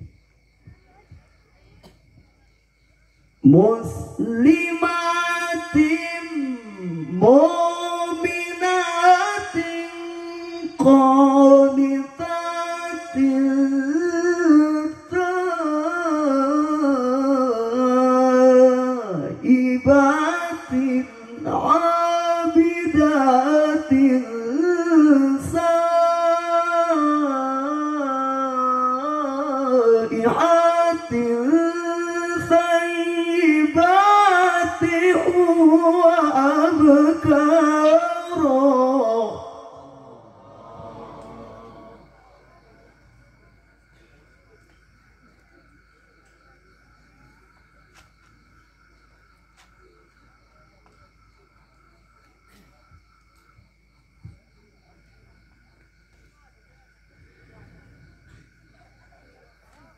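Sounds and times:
man reciting melismatically over pa: 0:03.4 - 0:44.6.

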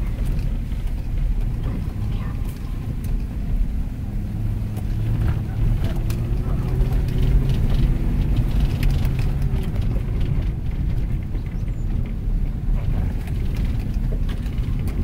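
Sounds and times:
engine and tyres rumbling on stones: 0:00.0 - 0:15.0
gravel clicks and knocks: 0:04.7 - 0:15.0.

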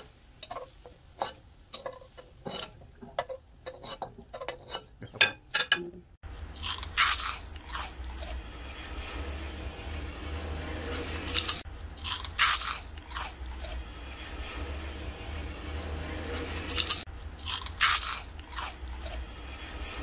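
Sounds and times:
crunching of snack chips: 0:06.2 - 0:09.1, 0:10.4 - 0:14.6, 0:16.2 - 0:20.0
steady low hum: 0:06.2 - 0:20.0.

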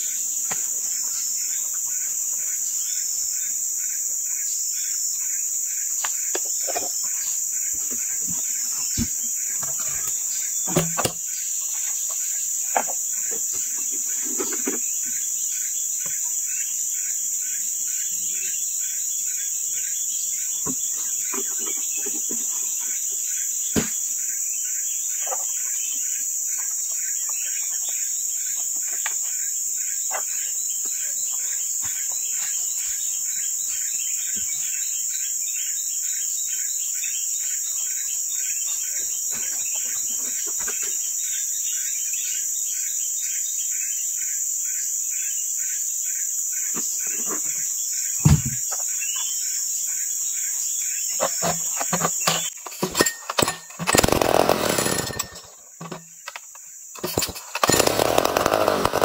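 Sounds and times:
insects droning: 0:00.0 - 0:59.0
pulsing insect chirp: 0:00.0 - 0:59.0.

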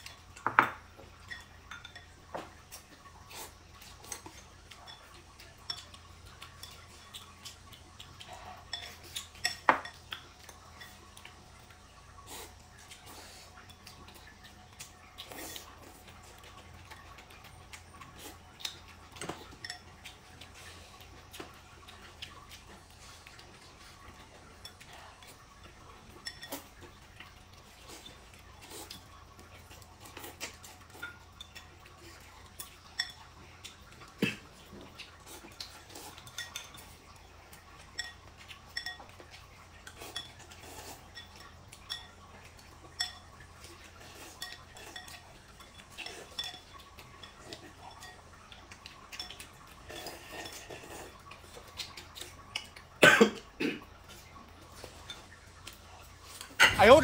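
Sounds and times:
chopsticks clinking on bowls: 0:00.0 - 0:02.9, 0:03.8 - 0:11.3, 0:18.6 - 0:20.5, 0:21.3 - 0:52.9.

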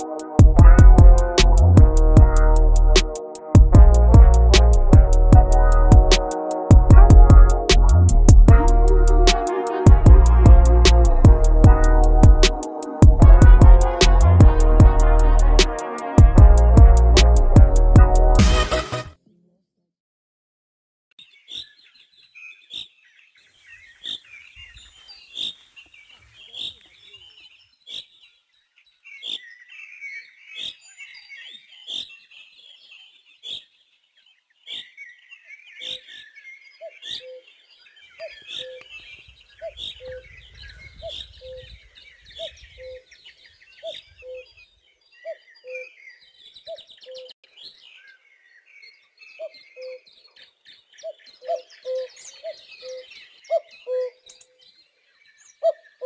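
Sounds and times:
birds chirping: 0:35.7 - 0:56.0.

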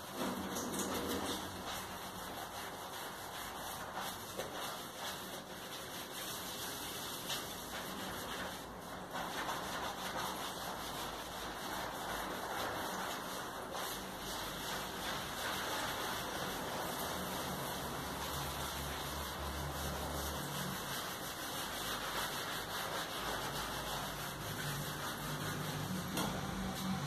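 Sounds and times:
sponge scrubbing a stone countertop: 0:00.0 - 0:27.0.

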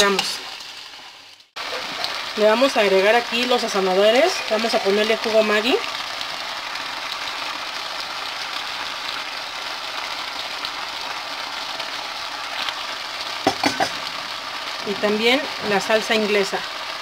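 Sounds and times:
food sizzling in a pan: 0:00.0 - 0:17.0.

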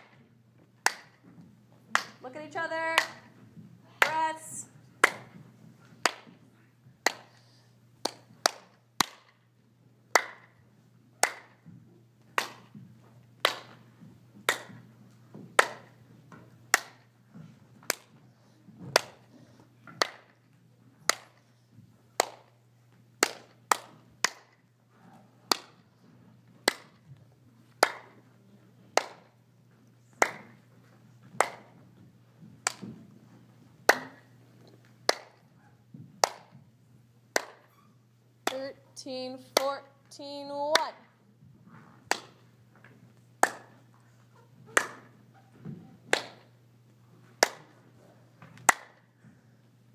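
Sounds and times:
hand claps keeping a beat: 0:00.0 - 0:03.4, 0:04.0 - 0:09.5, 0:10.1 - 0:17.1, 0:17.8 - 0:21.5, 0:22.2 - 0:22.6, 0:23.2 - 0:24.6, 0:25.5 - 0:28.2, 0:28.9 - 0:29.4, 0:30.0 - 0:31.8, 0:32.5 - 0:33.1, 0:33.8 - 0:35.5, 0:36.2 - 0:36.7, 0:37.3 - 0:37.7, 0:38.4 - 0:38.8, 0:40.6 - 0:41.1, 0:42.1 - 0:42.5, 0:43.2 - 0:44.0, 0:44.7 - 0:46.6, 0:47.4 - 0:47.8, 0:48.6 - 0:49.2.

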